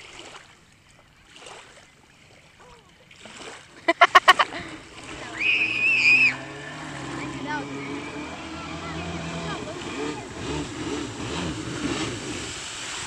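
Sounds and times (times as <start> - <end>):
distant jet ski engine hum: 1.9 - 13.0
loud sharp calls: 5.3 - 9.3
high whistle: 5.4 - 6.6.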